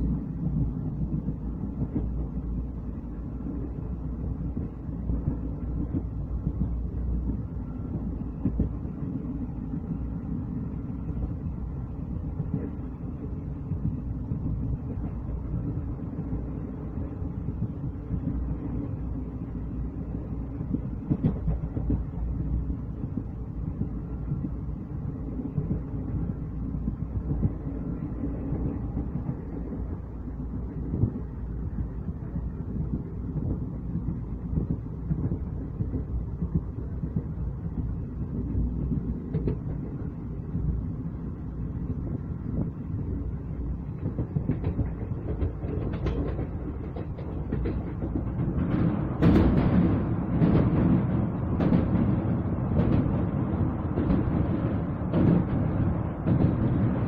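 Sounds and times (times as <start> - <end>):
train wheels rumbling on rail: 0.0 - 57.0
rattle of small clacks: 41.7 - 57.0.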